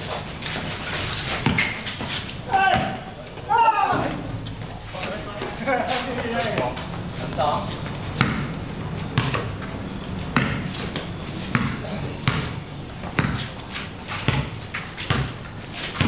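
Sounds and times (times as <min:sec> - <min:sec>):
basketball bouncing on concrete: 0:01.4 - 0:01.8, 0:02.7 - 0:03.0, 0:08.2 - 0:09.6, 0:10.3 - 0:13.5, 0:14.2 - 0:16.0
players calling out: 0:02.4 - 0:06.6.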